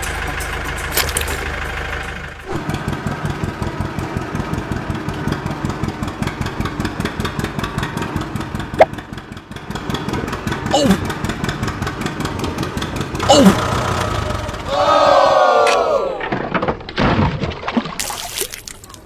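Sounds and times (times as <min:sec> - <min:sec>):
tractor engine chugging: 0:00.0 - 0:14.9.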